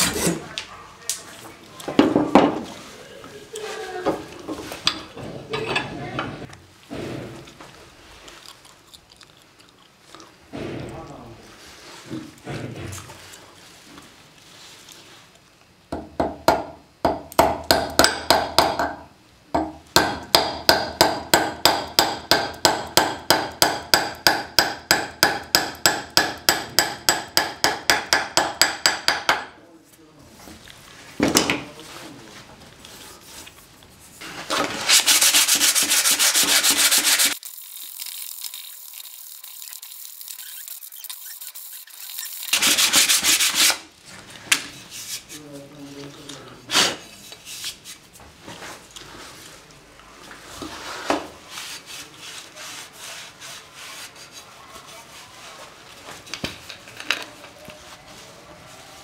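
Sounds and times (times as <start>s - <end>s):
hammering steel wedge: 19.6s - 29.5s
sanding wooden handle: 34.8s - 37.4s, 38.9s - 43.8s.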